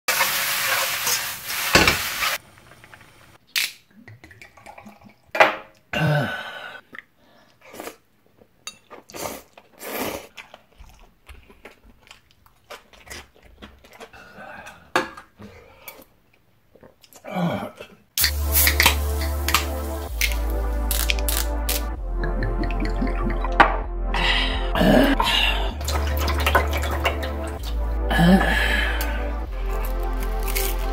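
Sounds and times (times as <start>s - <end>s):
food sizzling in a wok: 0.1s - 2.5s, 18.2s - 21.0s
eating sounds: 6.8s - 23.6s, 24.4s - 30.9s
bowls and cutlery clinking: 25.9s - 27.6s.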